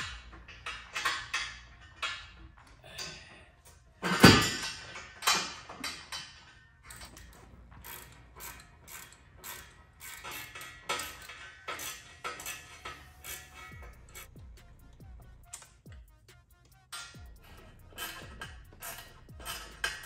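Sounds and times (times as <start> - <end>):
socket ratchet clicking: 6.9 - 20.0.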